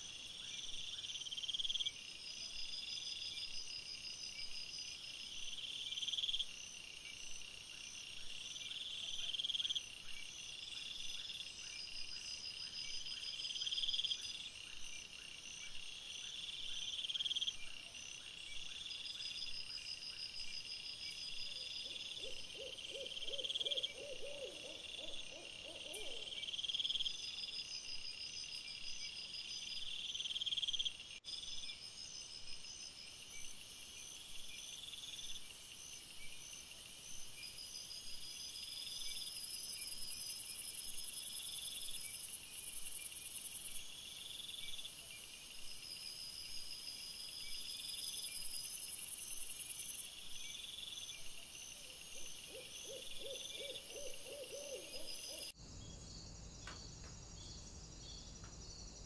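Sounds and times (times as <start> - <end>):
constant high hiss: 26.2 - 59.0.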